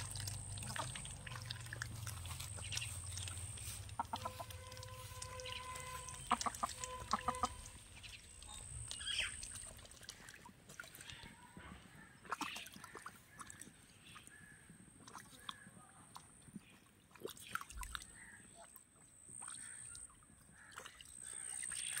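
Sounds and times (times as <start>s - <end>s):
chickens clucking: 2.5s - 8.8s.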